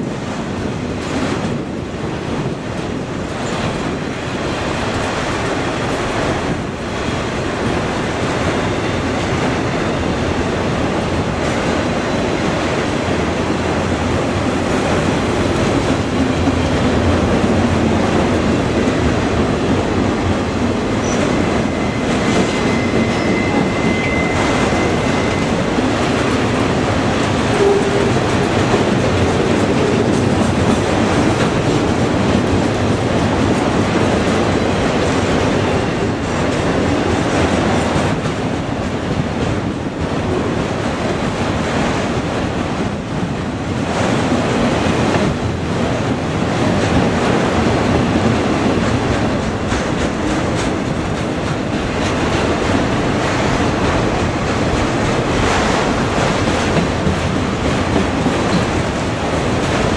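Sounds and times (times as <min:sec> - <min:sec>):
freight train wheels rumbling: 0:00.0 - 0:59.9
high wheel squeal: 0:21.0 - 0:25.7.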